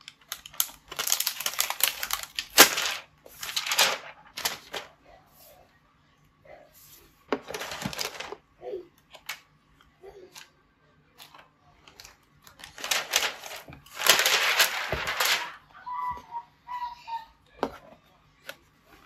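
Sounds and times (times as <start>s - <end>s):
plastic wrapping crinkling: 0.0s - 5.0s, 7.4s - 8.4s, 11.9s - 15.7s.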